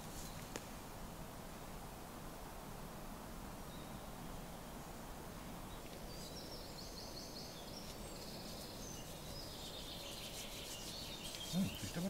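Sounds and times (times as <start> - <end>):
songbird singing trills: 5.6 - 12.0.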